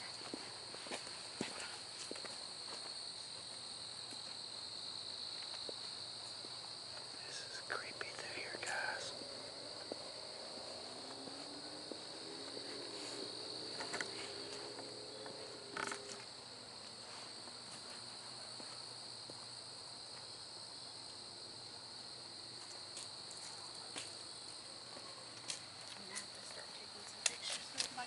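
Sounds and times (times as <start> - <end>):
footsteps scuffing: 0.0 - 4.6, 5.3 - 7.1, 8.7 - 19.5, 22.6 - 26.6
night insects trilling: 0.0 - 28.0.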